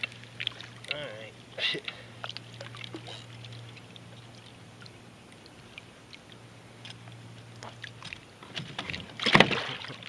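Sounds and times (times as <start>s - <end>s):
fish splashing at water surface: 7.6s - 10.0s.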